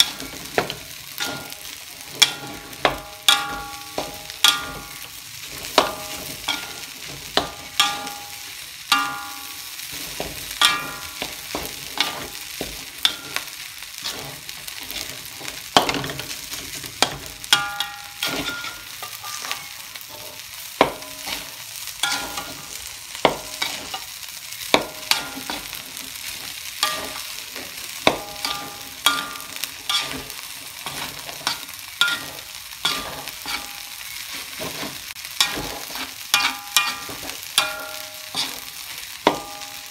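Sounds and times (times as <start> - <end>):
metal spatula clanking on wok: 0.0 - 15.2, 15.8 - 16.4, 17.0 - 25.9, 26.8 - 39.9
food sizzling in a wok: 0.0 - 39.9.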